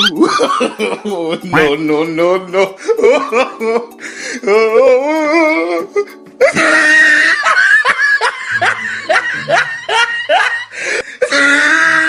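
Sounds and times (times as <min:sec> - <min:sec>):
wavering giggle: 0:00.0 - 0:01.7
music: 0:00.0 - 0:12.0
loud rapid laugh: 0:06.4 - 0:11.9.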